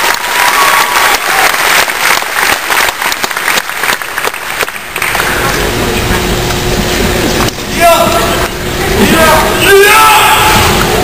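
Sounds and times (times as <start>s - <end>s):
crowd applauding: 0.0s - 6.3s.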